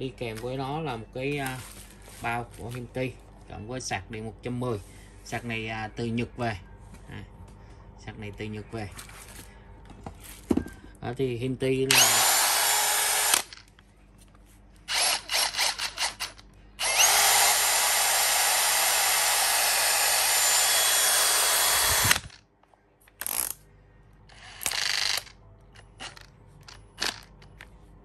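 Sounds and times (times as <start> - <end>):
cordless drill running: 11.9 - 13.5, 14.9 - 22.3.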